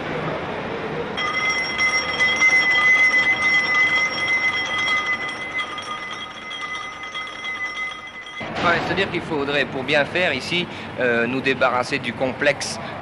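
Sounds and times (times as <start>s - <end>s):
high ringing machine whine: 1.2s - 9.8s.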